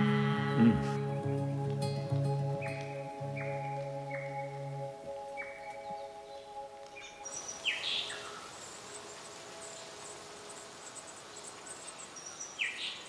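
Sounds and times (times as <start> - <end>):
soft music with mallet notes: 0.0 - 8.4
faint high bird chirps: 2.6 - 13.0.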